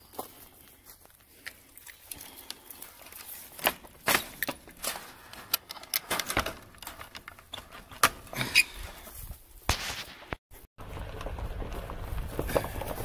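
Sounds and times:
metal cage latch clanking: 0:05.5 - 0:07.3.

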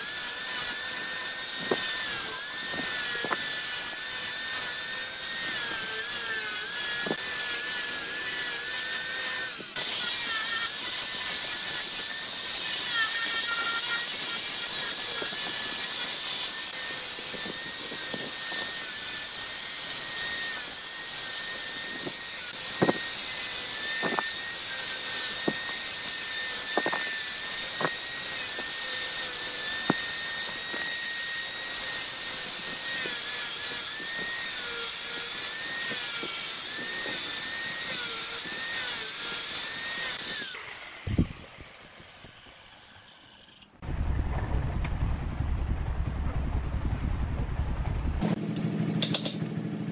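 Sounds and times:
sanding drum hissing: 0:00.0 - 0:43.3
motor whine: 0:16.6 - 0:44.7.

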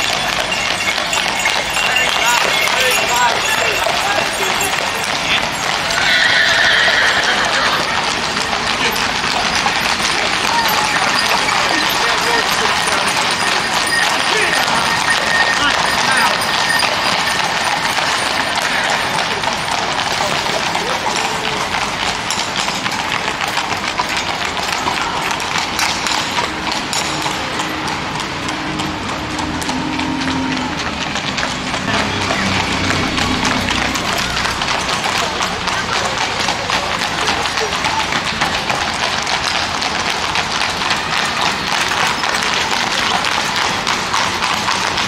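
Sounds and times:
horse hooves clattering on pavement: 0:00.0 - 0:45.0
bus engine hum: 0:28.0 - 0:35.8.

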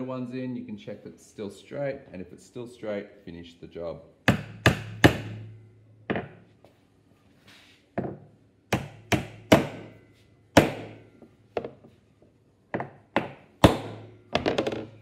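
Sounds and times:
hammer driving nails into wood: 0:04.3 - 0:05.4, 0:08.7 - 0:09.9, 0:10.6 - 0:11.0, 0:12.8 - 0:14.9.

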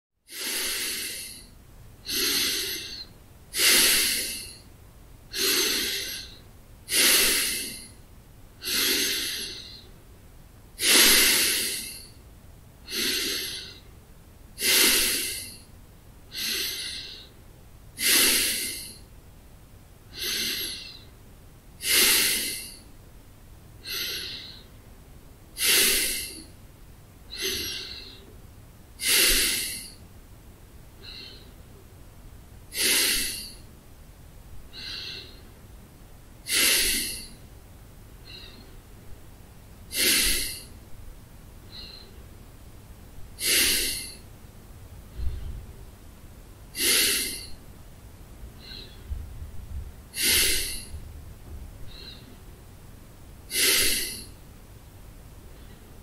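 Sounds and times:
man breathing through nose: 0:00.3 - 0:04.7, 0:05.3 - 0:10.0, 0:10.8 - 0:12.2, 0:12.8 - 0:13.9, 0:14.6 - 0:17.4, 0:18.0 - 0:19.1, 0:20.1 - 0:21.2, 0:21.8 - 0:23.0, 0:23.8 - 0:24.8, 0:25.5 - 0:26.6, 0:27.3 - 0:30.1, 0:31.0 - 0:31.8, 0:32.7 - 0:33.8, 0:34.7 - 0:35.6, 0:36.4 - 0:37.6, 0:38.2 - 0:38.9, 0:39.9 - 0:40.9, 0:41.6 - 0:42.3, 0:43.4 - 0:44.3, 0:45.1 - 0:45.7, 0:46.7 - 0:47.6, 0:48.5 - 0:49.2, 0:50.1 - 0:51.1, 0:51.8 - 0:52.6, 0:53.5 - 0:54.4, 0:55.5 - 0:56.0.

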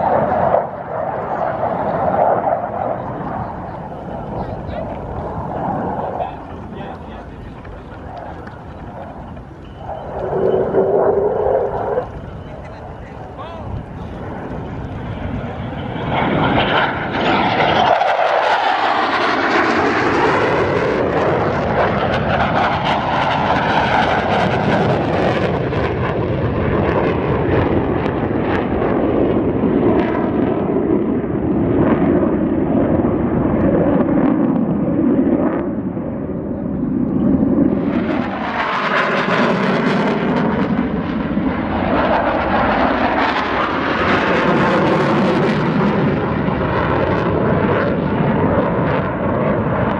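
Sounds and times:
jet engine roaring: 0:00.0 - 0:49.9.

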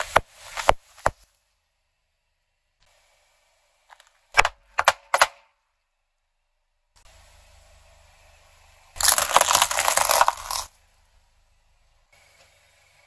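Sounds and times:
plastic crackling and snapping: 0:09.0 - 0:10.7.

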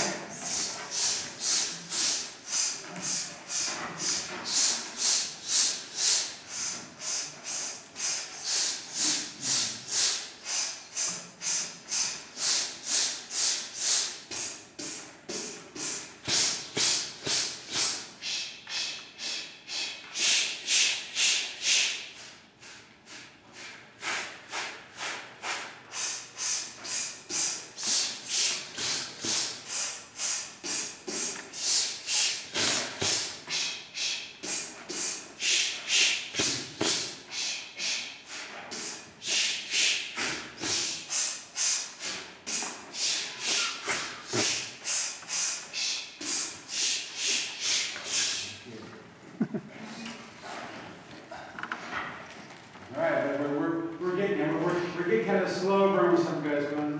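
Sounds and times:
men hissing in sharp pulses: 0:00.0 - 0:48.7.

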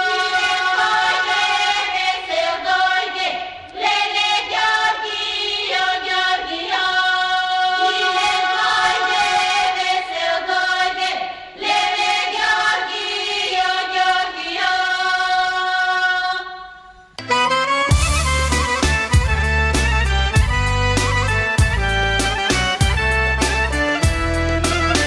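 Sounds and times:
children's choir singing: 0:00.0 - 0:17.0.

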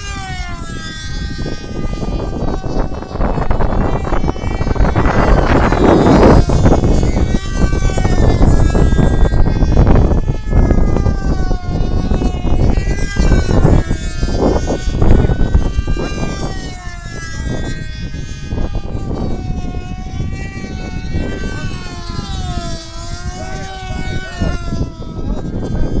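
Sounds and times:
model airplane engines whining: 0:00.0 - 0:26.0
wind buffeting microphone: 0:00.0 - 0:26.0.

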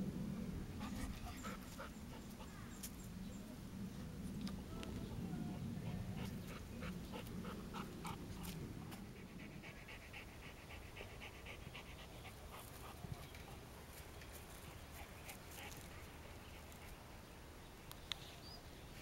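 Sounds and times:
dog panting: 0:00.8 - 0:02.6, 0:05.5 - 0:17.1.

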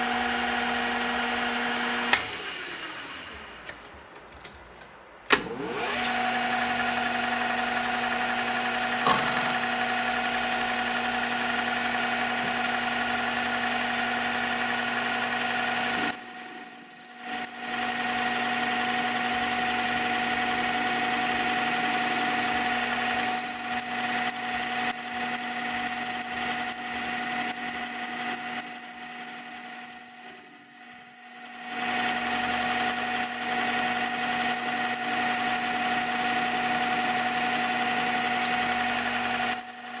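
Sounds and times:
metal lathe humming and whining: 0:00.0 - 0:03.6, 0:05.6 - 0:40.0
rattle of lathe tool: 0:08.9 - 0:40.0
high squeal of tool cutting metal: 0:15.6 - 0:40.0.

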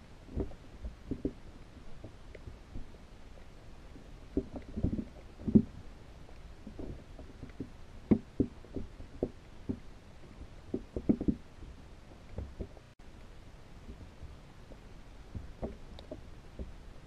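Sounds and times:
muffled underwater knocks: 0:04.3 - 0:05.8, 0:06.6 - 0:09.9, 0:10.7 - 0:11.4.

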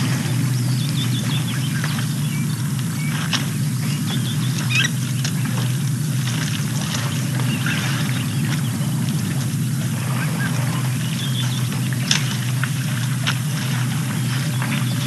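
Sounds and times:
steady low hum: 0:00.0 - 0:15.0
bird chirps and calls: 0:03.8 - 0:05.3.

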